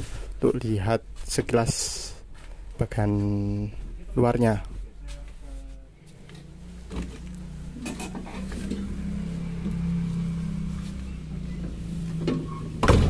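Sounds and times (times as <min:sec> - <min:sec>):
bus engine idling: 0:06.8 - 0:12.7.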